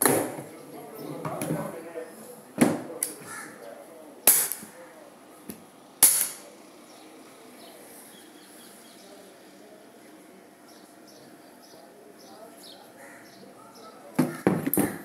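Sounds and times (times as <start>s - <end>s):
shotgun hammer snapping: 4.3s - 4.7s, 6.0s - 6.4s.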